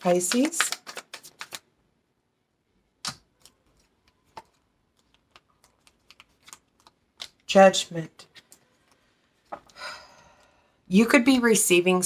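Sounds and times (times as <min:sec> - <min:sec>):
cards clicking and tapping: 0:00.2 - 0:01.6, 0:03.0 - 0:07.4.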